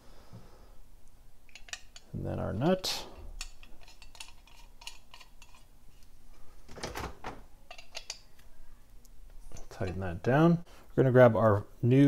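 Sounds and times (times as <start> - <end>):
light metal clicks and clinks: 7.6 - 8.3.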